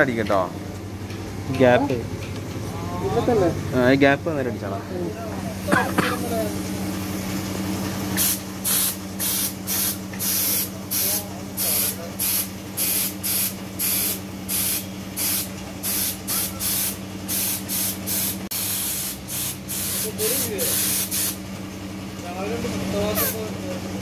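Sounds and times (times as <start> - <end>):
steady low hum: 0.0 - 21.8
paint spray gun hissing: 8.2 - 21.4.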